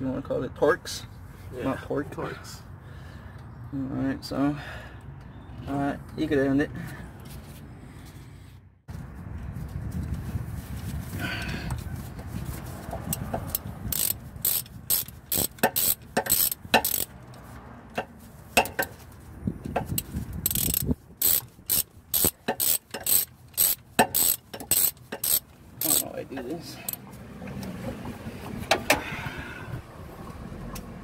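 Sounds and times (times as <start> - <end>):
ratchet wrench clicking: 13.1 - 17.2, 19.8 - 26.2.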